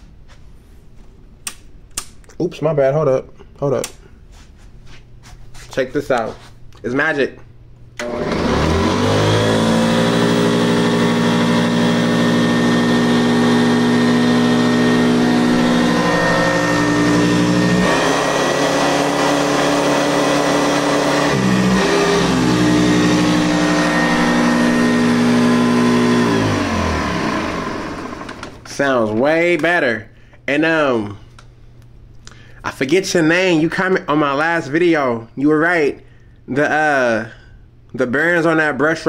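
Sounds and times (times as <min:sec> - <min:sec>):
vacuum cleaner motor humming: 0:08.0 - 0:28.7.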